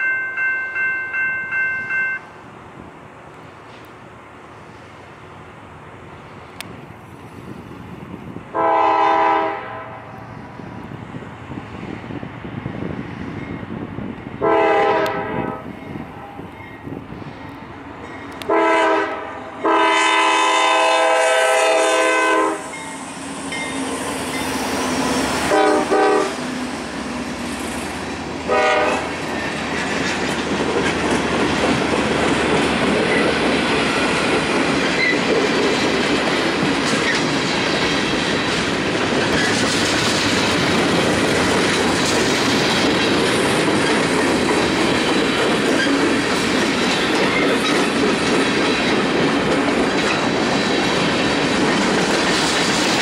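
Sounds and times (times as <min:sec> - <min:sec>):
train wheels on rails: 0:00.0 - 0:53.0
locomotive air horn blasts: 0:08.5 - 0:10.1, 0:14.4 - 0:16.4, 0:18.4 - 0:22.8, 0:25.4 - 0:26.4, 0:28.5 - 0:29.1.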